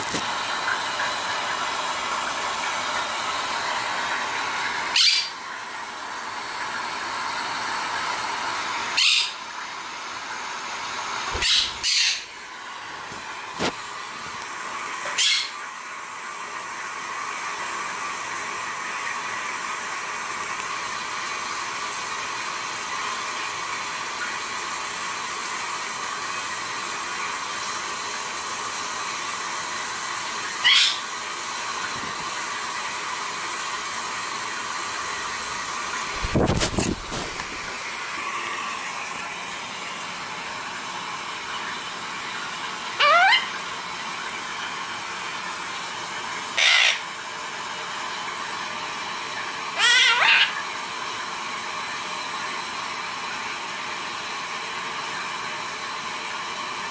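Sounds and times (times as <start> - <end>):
parrot chirping: 4.9 - 5.4, 9.0 - 9.4, 11.4 - 12.3, 15.1 - 15.6, 30.6 - 31.0, 43.0 - 43.5, 46.6 - 47.0, 49.8 - 50.6.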